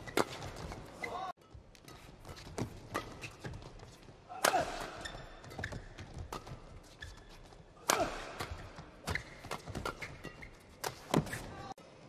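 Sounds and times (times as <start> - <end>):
racket striking shuttlecock: 1.5 - 6.8, 7.8 - 11.4.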